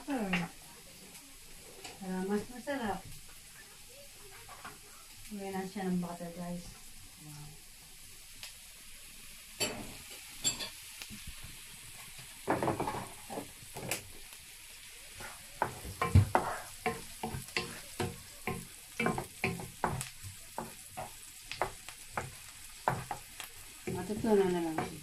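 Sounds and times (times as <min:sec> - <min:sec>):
onion sizzling in frying pan: 0:00.0 - 0:25.0
wooden spoon scraping pan: 0:15.2 - 0:25.0.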